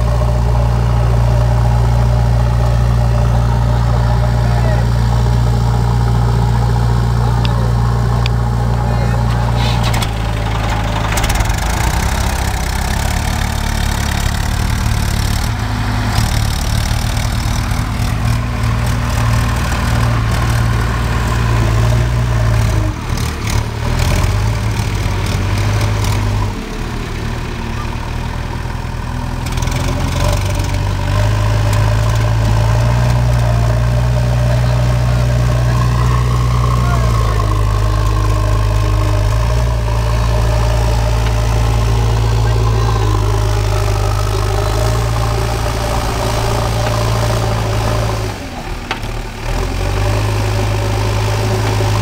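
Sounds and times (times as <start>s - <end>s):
diesel engine droning: 0.0s - 52.0s
loader bucket pushing soil: 8.3s - 52.0s.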